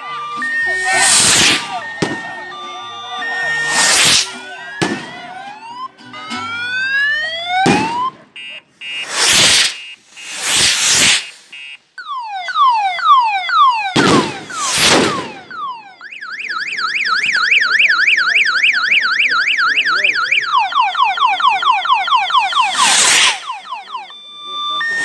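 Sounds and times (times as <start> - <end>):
electronic vehicle siren: 0.0 - 25.0
firecracker bangs: 0.9 - 2.4, 3.8 - 5.3, 7.6 - 8.2, 9.0 - 11.5, 14.0 - 15.5.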